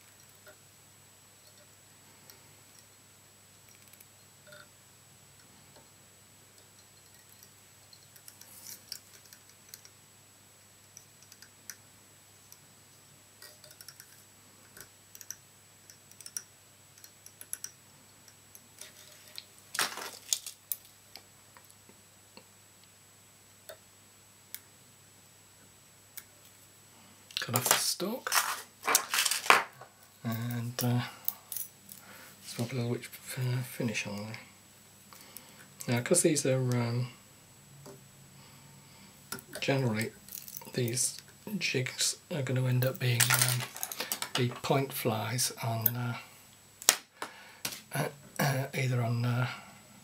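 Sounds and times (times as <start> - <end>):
faint steady hum: 0.0 - 50.0
small clicks and ticks: 3.7 - 4.7, 6.6 - 10.0, 10.8 - 11.8, 13.4 - 19.5.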